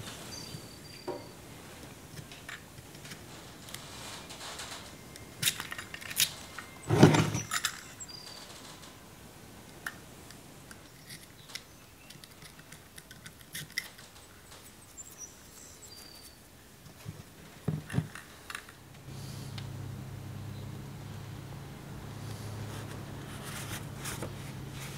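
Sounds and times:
low steady hum: 14.3 - 24.9.

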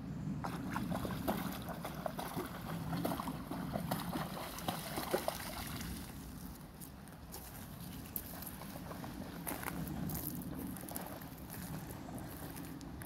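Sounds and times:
dog splashing through water: 0.4 - 6.2
stream flowing: 0.4 - 6.8.

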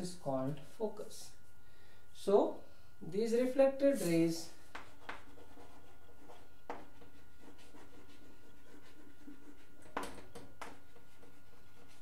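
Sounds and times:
low background hum: 0.0 - 12.0
chalk scratching on blackboard: 4.0 - 12.0
chalk taps: 4.7 - 12.0.

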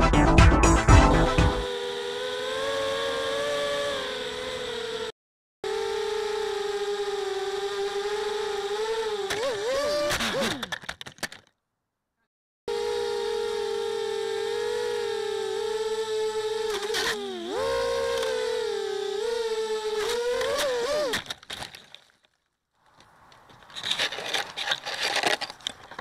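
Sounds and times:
drone motors whining: 0.6 - 10.9, 12.7 - 21.4
scraping and rustling: 22.9 - 26.0.

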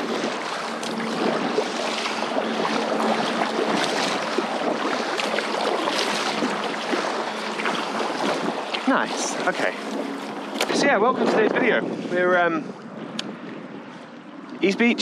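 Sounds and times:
paddle splashing in water: 0.0 - 10.8
water swishing along hull: 0.0 - 15.0.

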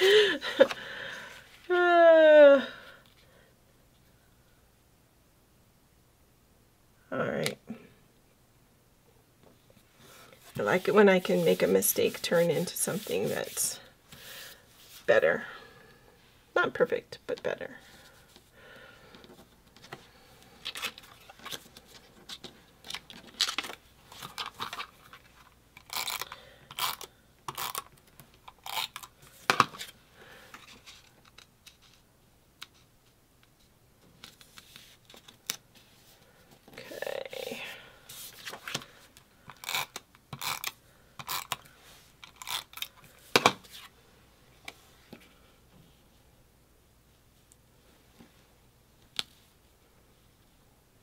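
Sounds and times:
paper rustling: 10.3 - 13.7.

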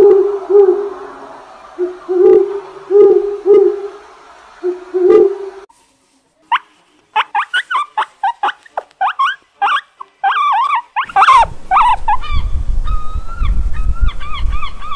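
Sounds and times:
meerkats chirping: 6.5 - 14.9
wind rumble on microphone: 11.1 - 14.9.

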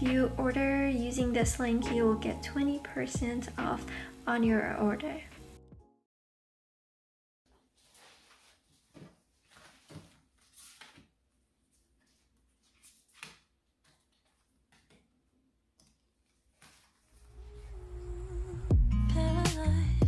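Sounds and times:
faint paper rustles: 7.5 - 15.0, 16.2 - 17.4.

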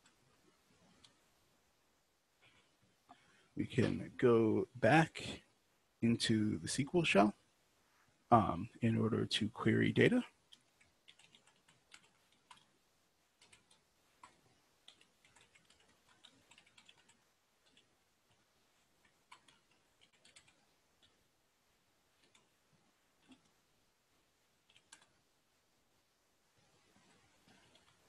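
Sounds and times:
faint typing on a keyboard: 0.0 - 1.4, 2.4 - 4.0, 9.6 - 21.3, 22.1 - 23.7, 24.5 - 25.4, 26.6 - 28.0.

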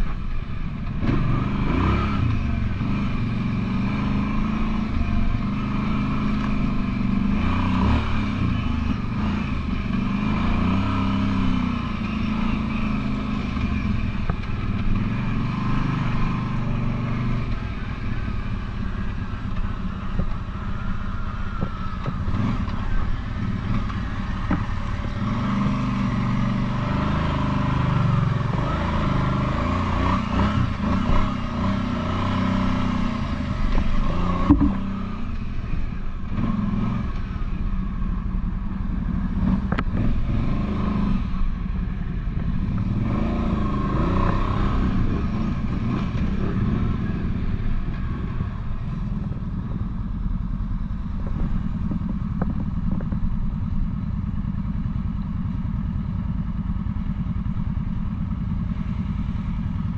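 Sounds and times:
atv engine revving: 0.8 - 37.8, 38.9 - 59.9
knocks and clatter: 33.7 - 34.8.

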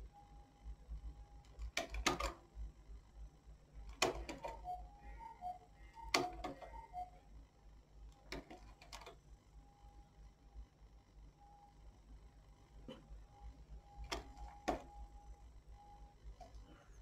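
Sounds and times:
knitting machine metallic clicks: 1.4 - 2.4, 3.9 - 4.7, 5.9 - 6.7, 8.2 - 9.2.

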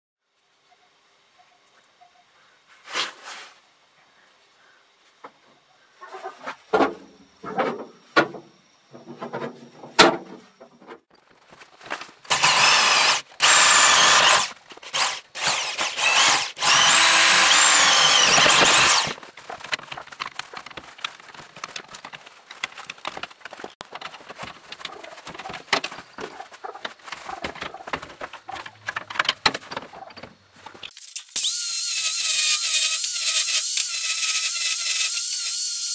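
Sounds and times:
electric drill whining: 12.3 - 19.2, 31.3 - 35.9.

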